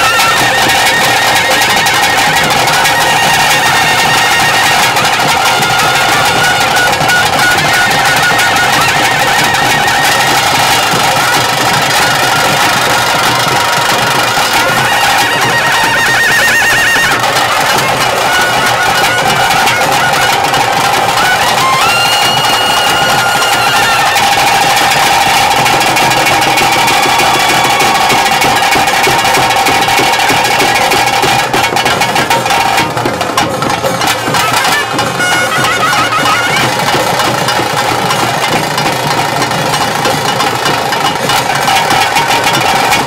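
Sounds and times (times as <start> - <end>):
wind instrument drone: 0.0 - 33.0, 33.9 - 39.8
rapid drumming: 0.0 - 43.0.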